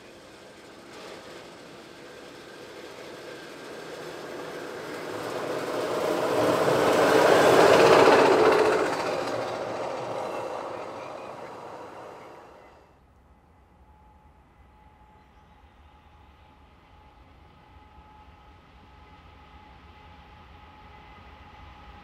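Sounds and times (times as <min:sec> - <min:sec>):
wheels rumbling on steel rail: 0:00.0 - 0:12.8.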